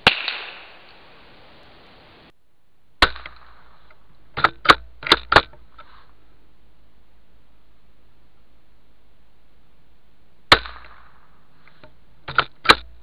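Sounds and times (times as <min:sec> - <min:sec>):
rifle shot: 0:03.0 - 0:05.5, 0:10.5 - 0:11.4
sharp metallic clicks of rifle action: 0:03.0 - 0:05.9, 0:10.5 - 0:13.0.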